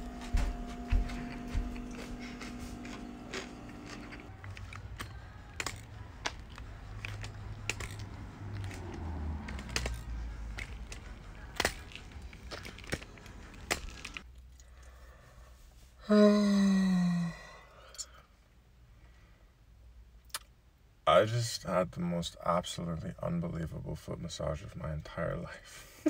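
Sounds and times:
steady hum: 0:00.0 - 0:06.6
crutches and footsteps tapping: 0:00.0 - 0:14.2.

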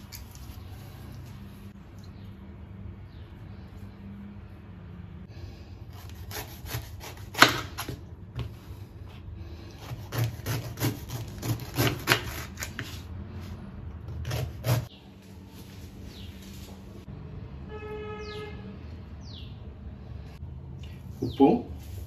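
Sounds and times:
knife cutting through tough rind: 0:05.9 - 0:08.0, 0:09.7 - 0:13.1, 0:14.1 - 0:14.9.

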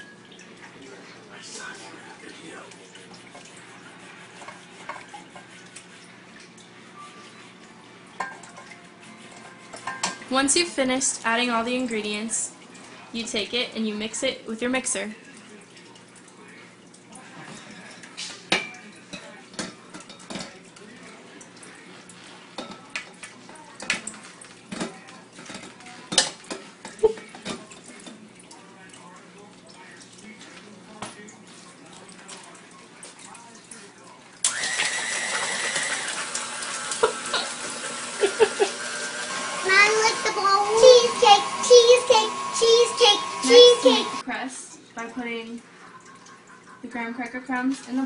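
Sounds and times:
utensils clinking against dishes: 0:04.3 - 0:10.7, 0:17.1 - 0:30.4, 0:31.0 - 0:39.0.

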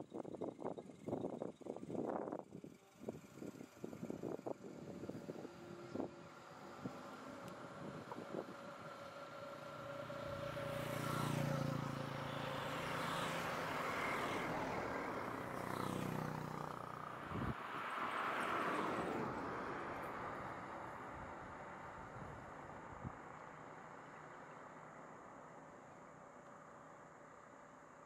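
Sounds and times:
truck driving past: 0:02.9 - 0:20.9
car passing: 0:03.2 - 0:22.5
motorcycle passing: 0:03.8 - 0:19.4.

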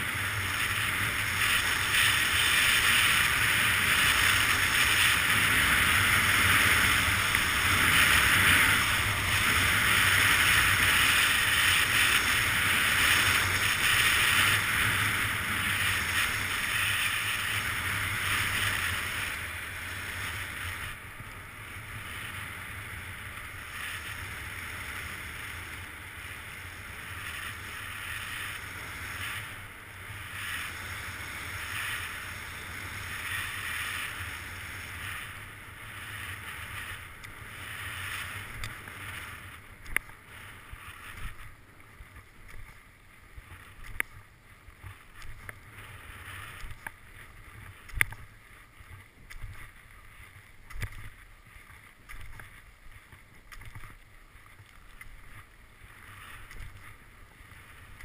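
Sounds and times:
skis scraping snow: 0:00.0 - 0:58.0.

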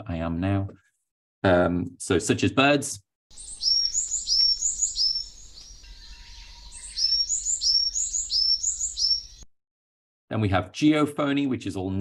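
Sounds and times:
bird calling high notes: 0:03.3 - 0:09.5.

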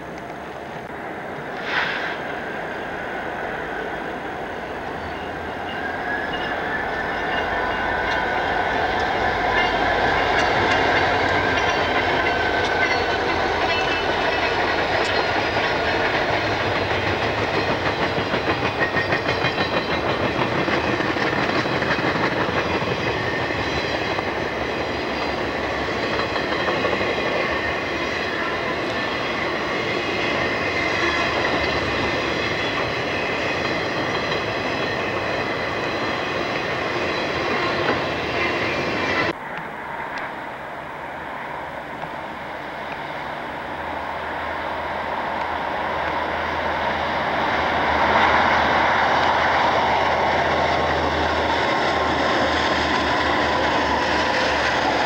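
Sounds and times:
diesel locomotive engines: 0:00.0 - 0:55.0
train wheels clattering over rail joints: 0:05.7 - 0:39.4.

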